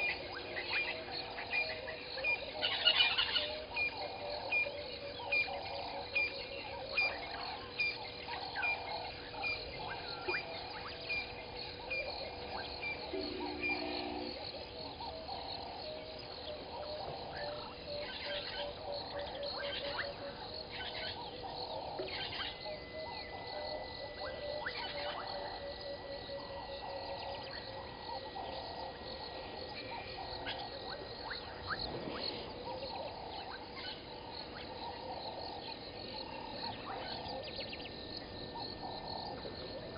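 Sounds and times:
chorus of frogs calling: 0.0 - 39.9
insects trilling: 0.0 - 39.9
regular ticking call: 11.2 - 15.7.

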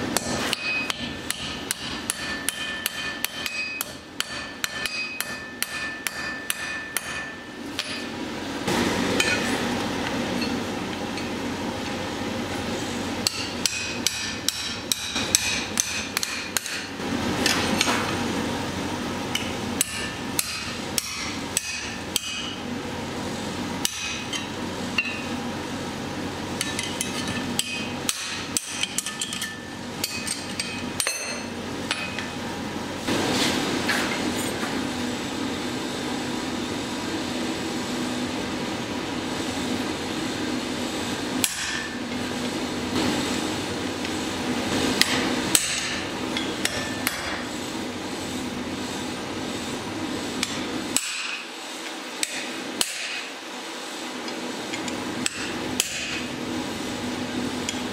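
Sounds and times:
hammer striking steel on anvil: 0.1 - 8.2, 9.2 - 9.6, 13.2 - 18.1, 19.3 - 22.6, 23.8 - 25.3, 26.6 - 32.3, 41.4 - 42.0, 45.0 - 47.5, 50.4 - 51.5, 52.2 - 53.3, 55.2 - 56.2.

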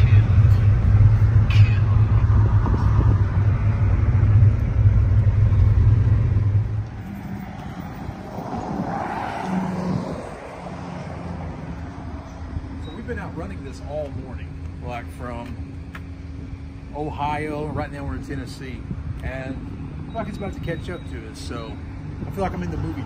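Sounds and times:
vehicle passing: 0.0 - 14.5
car engine rumble: 0.0 - 23.0
open-air ambience: 0.0 - 23.0
road noise inside car: 0.0 - 23.0.

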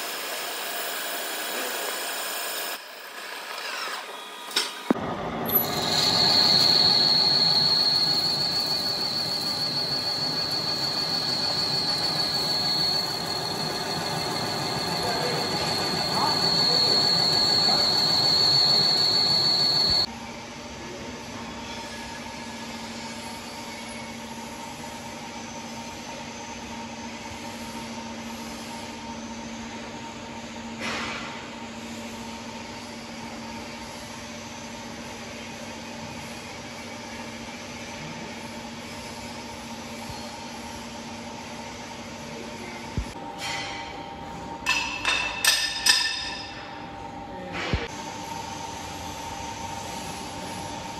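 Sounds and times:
lathe cutting steel: 0.0 - 20.1
machine hum: 4.9 - 20.1.

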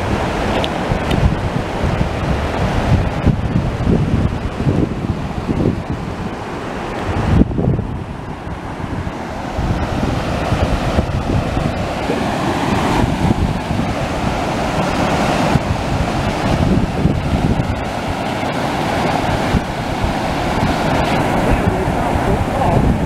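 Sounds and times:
rushing whitewater: 0.0 - 23.0
wind buffeting microphone: 0.0 - 23.0.

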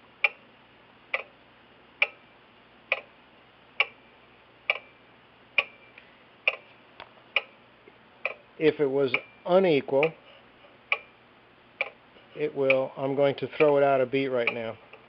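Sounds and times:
clock ticking: 0.2 - 0.4, 1.1 - 1.3, 2.0 - 2.2, 2.9 - 3.1, 3.8 - 4.0, 4.7 - 4.9, 5.6 - 5.8, 6.4 - 6.7, 8.2 - 8.4, 9.1 - 9.3, 10.0 - 10.2, 10.9 - 11.1, 11.8 - 15.0.

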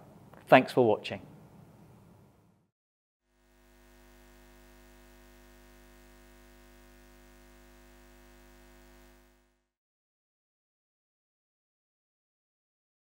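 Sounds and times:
faint low hum of held tones: 3.4 - 9.7.

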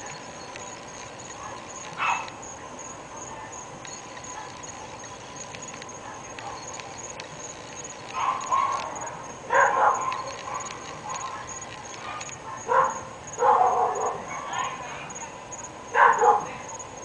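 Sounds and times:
dogs barking: 1.2 - 2.4, 8.1 - 14.9, 15.9 - 16.6.

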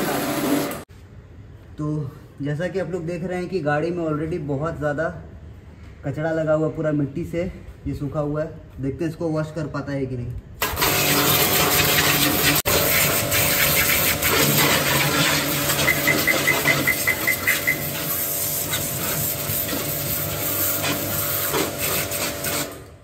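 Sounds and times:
pressure washer motor humming: 0.0 - 0.8, 10.6 - 22.9
high-pressure water jet hissing: 10.6 - 22.8.

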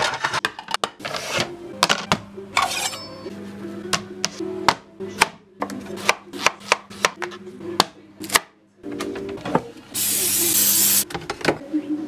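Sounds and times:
knife chopping on cutting board: 6.0 - 7.2.

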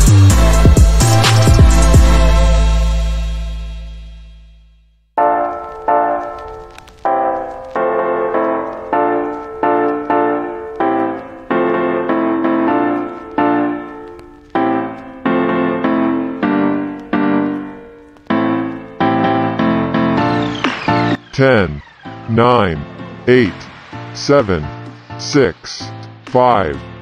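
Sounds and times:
solo piano music: 5.2 - 25.2.

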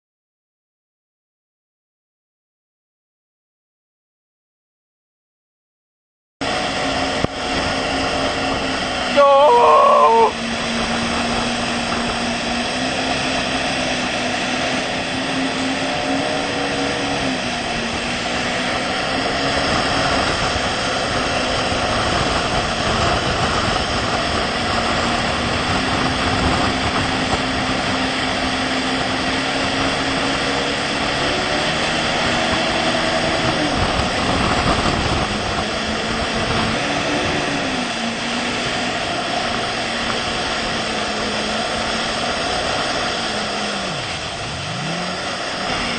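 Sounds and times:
motorboat engine running: 6.4 - 45.9
wake water rushing: 6.4 - 45.9.

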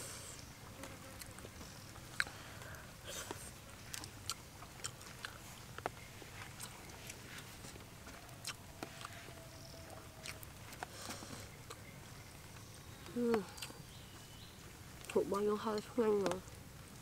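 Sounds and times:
faint low background noise: 0.0 - 17.0
person chewing and eating: 1.1 - 11.9, 13.1 - 13.9.

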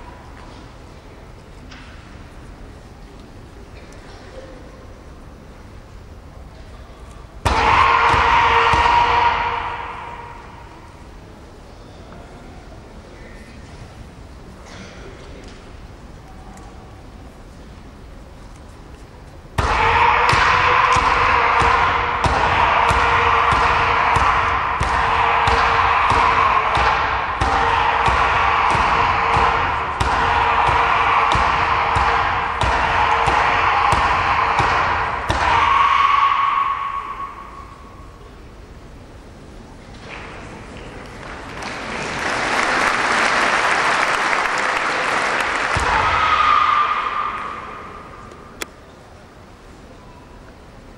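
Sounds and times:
long high shout: 7.5 - 10.9, 19.6 - 38.2, 45.6 - 48.6
audience applauding: 40.7 - 45.8.

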